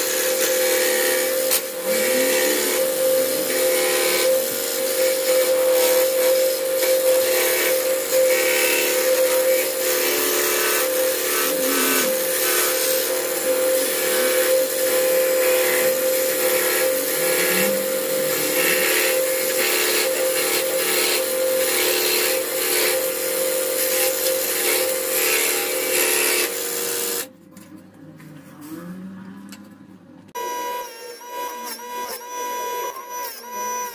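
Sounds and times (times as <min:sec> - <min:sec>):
scroll saw cutting wood: 0:00.0 - 0:27.3, 0:30.4 - 0:33.9.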